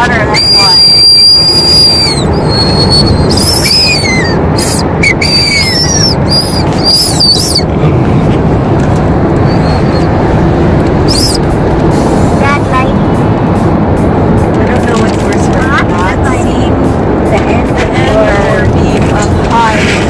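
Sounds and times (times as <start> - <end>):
car road noise inside cabin: 0.0 - 20.0
high wavering candy whistles: 0.3 - 7.6, 11.1 - 11.4.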